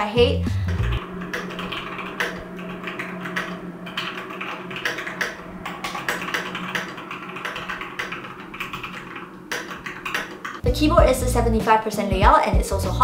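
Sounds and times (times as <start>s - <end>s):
mechanical keyboard typing: 0.6s - 10.6s.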